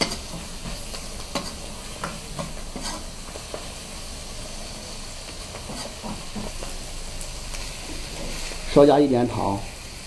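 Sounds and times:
ladle scraping and tapping wok: 0.0 - 3.7, 5.5 - 6.8
food sizzling in wok: 0.0 - 10.0.

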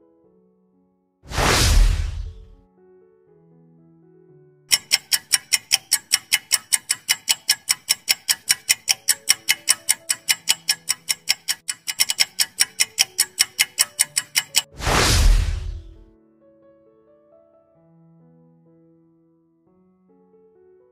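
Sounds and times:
loud rushing sound effect: 1.3 - 2.6, 14.7 - 16.0
fast clock ticking: 1.4 - 2.6, 4.7 - 16.0.

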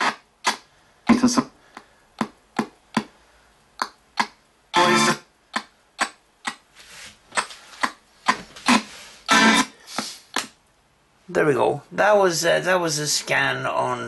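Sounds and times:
snatches of broadcast music: 0.0 - 1.6, 3.8 - 10.6.

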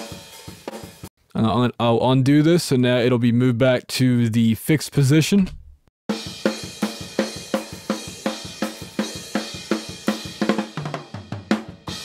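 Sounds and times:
hi-hat and cymbals: 0.0 - 1.1.

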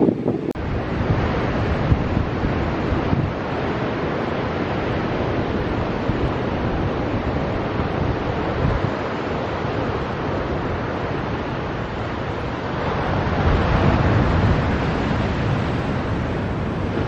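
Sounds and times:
ocean surf: 0.0 - 17.0
wind buffeting microphone: 0.0 - 17.0.

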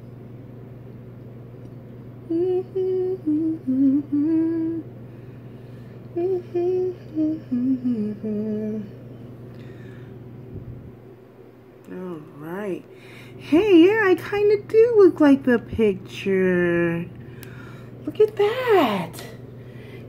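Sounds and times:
low background hum: 0.0 - 20.0
person humming a tune: 2.2 - 4.9, 6.1 - 9.0.

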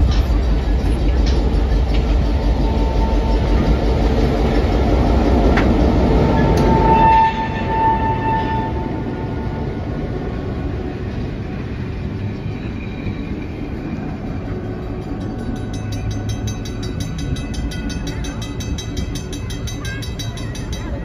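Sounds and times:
crossing bell ringing: 0.0 - 21.0
locomotive rumbling past: 0.0 - 21.0
train horn blast: 2.6 - 4.4, 5.6 - 10.3.

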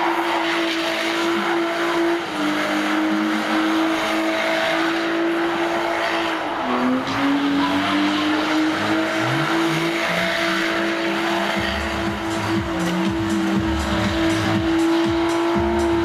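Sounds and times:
car engine at high revs: 0.0 - 16.0
tyres spinning and screeching: 0.0 - 16.0.

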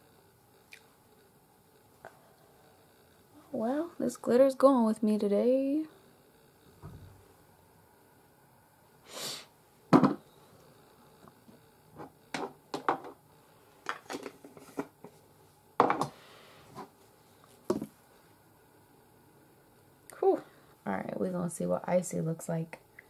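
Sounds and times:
short hissing rush: 9.0 - 9.5
objects knocking on table: 9.9 - 10.2, 12.3 - 13.2, 15.8 - 16.2, 17.7 - 17.9.

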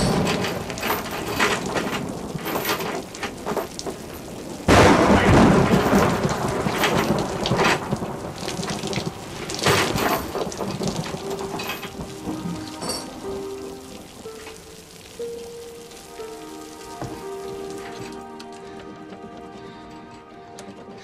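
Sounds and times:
loud thunder crash: 0.0 - 14.0
heavy rain: 0.0 - 21.0
thunder rumbling: 0.0 - 21.0
water streaming through grating: 0.0 - 21.0.

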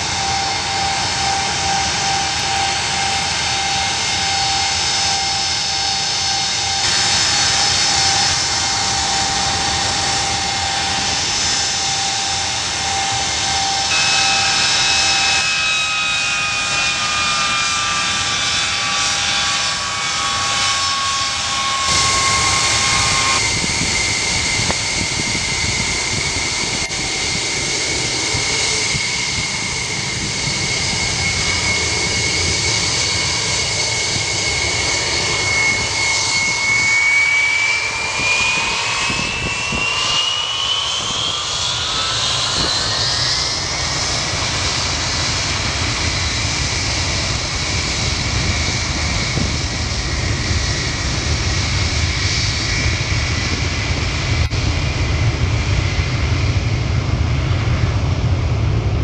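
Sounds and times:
jet engines whining: 0.0 - 59.0.

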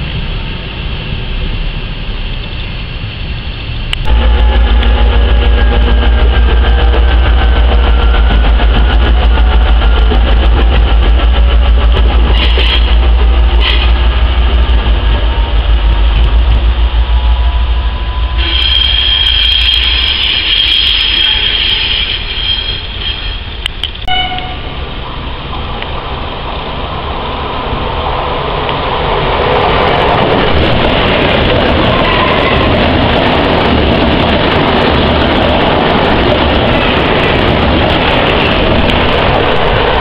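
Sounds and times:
diesel locomotive rumbling: 0.0 - 40.0
high-pitched wheel squeal: 18.0 - 24.7.

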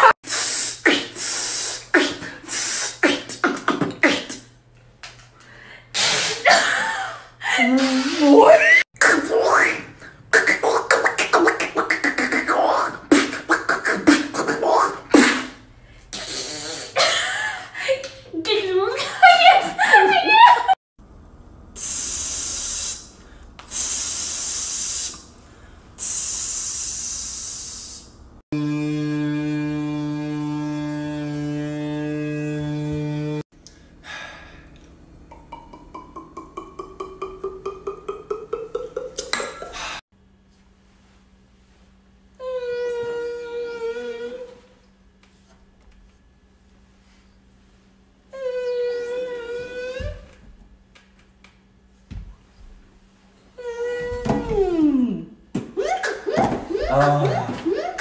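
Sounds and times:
beatboxing: 0.0 - 4.5, 9.0 - 17.0, 35.3 - 39.8, 55.8 - 58.0
beatboxing buzzing hum: 0.0 - 4.6, 9.0 - 17.1, 21.8 - 25.3, 26.0 - 33.9, 55.6 - 58.0
rhythmic gulping beats: 35.3 - 39.8.

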